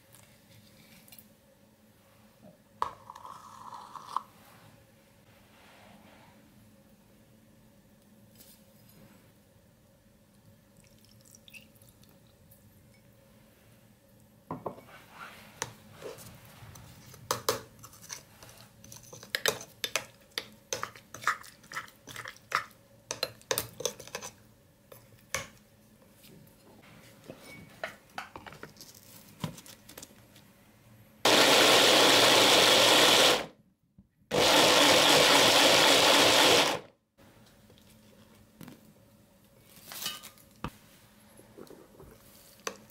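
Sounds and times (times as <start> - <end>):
electric mini chopper running: 34.3 - 36.8.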